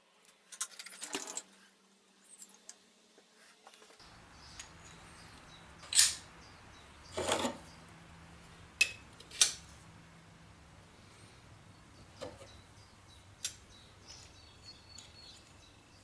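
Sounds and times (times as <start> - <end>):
metal parts rattling: 0.4 - 1.6.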